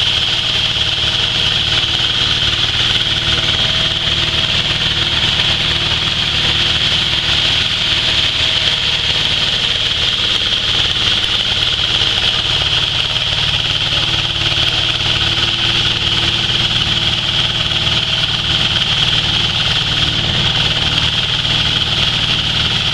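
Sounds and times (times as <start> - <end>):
hammer mill high-pitched whine: 0.0 - 22.9
low engine drone: 0.0 - 22.9.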